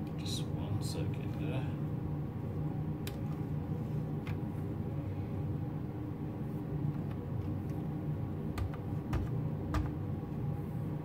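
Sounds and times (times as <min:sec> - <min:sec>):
computer machine hum: 0:00.0 - 0:11.0.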